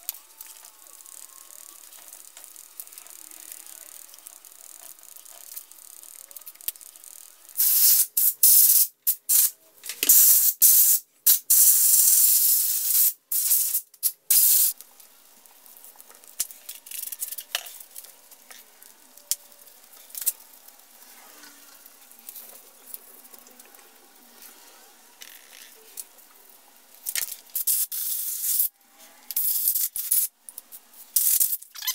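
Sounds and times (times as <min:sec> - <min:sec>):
compressed air blasts hissing: 0:07.6 - 0:09.5, 0:10.1 - 0:14.8.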